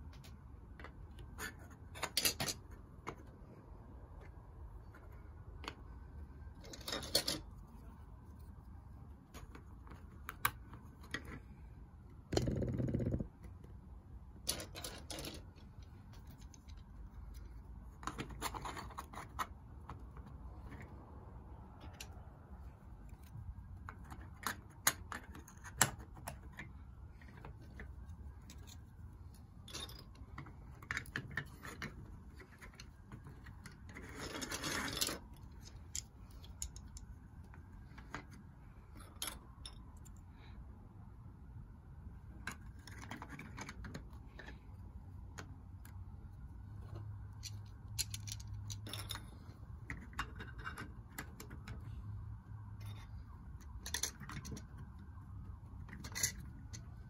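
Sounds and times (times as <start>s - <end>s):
plastic pieces clicking and knocking: 0.7s - 3.3s, 14.4s - 16.9s, 47.4s - 49.2s, 53.7s - 54.8s.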